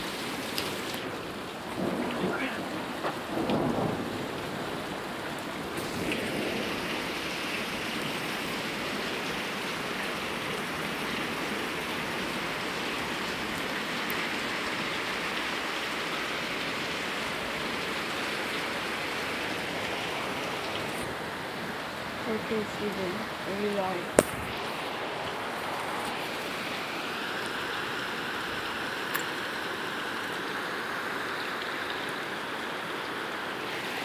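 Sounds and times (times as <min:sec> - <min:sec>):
heavy rain falling: 0:00.0 - 0:34.0.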